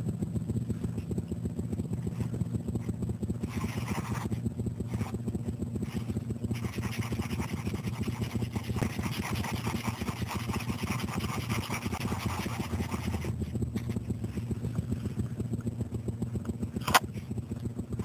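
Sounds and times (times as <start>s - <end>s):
marker scribbling on paper: 3.4s - 4.3s, 4.9s - 5.1s, 5.8s - 13.4s.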